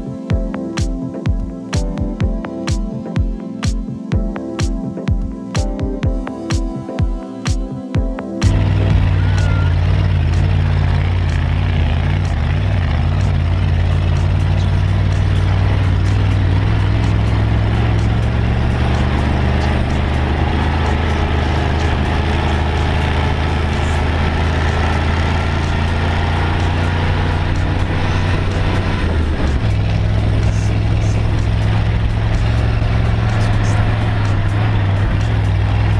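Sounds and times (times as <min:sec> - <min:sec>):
dune buggy engine running: 0:08.4 - 0:35.9.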